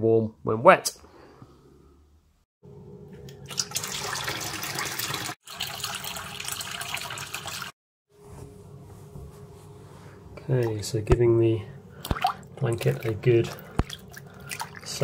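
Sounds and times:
tap water splashing into basin: 12.0 - 15.0.

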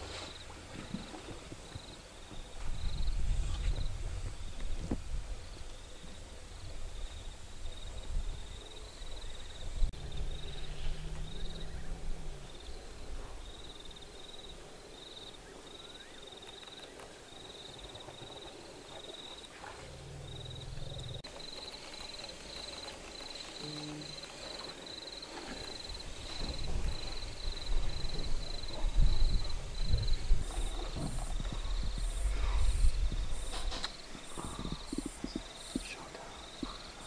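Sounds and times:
insects chirping: 0.0 - 37.0
elephants rumbling: 9.8 - 14.8, 17.6 - 37.0.

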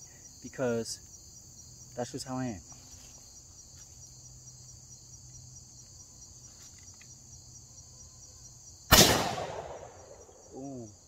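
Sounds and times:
high insect chorus: 0.0 - 11.0
shotgun blast: 8.9 - 10.1.

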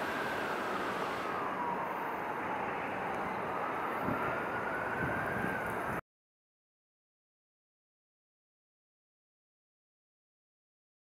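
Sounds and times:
faint whine changing pitch: 0.0 - 5.9
distant vehicles: 0.0 - 6.0.

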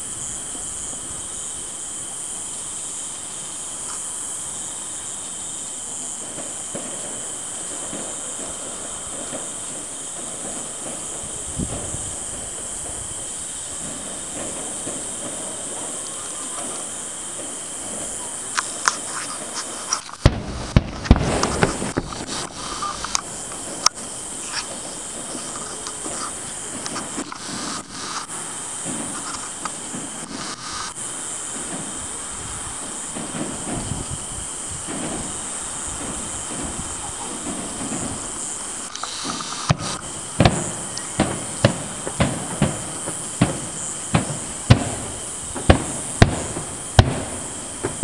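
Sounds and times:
distant fireworks pops and bangs: 0.0 - 48.0
insect chirring: 0.0 - 48.0.

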